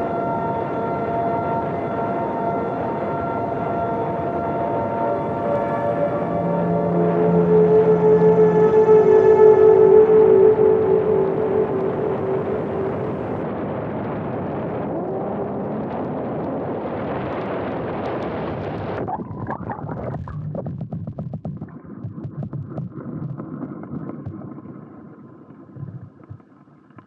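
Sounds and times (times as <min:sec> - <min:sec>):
wind rushing over camera: 0:10.7 - 0:24.6
muffled clicks underwater: 0:18.8 - 0:24.7, 0:25.8 - 0:27.0.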